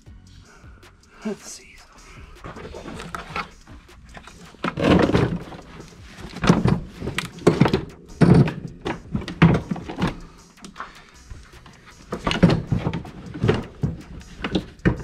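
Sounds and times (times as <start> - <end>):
dull thumps on engine parts: 4.2 - 10.3, 12.0 - 15.0.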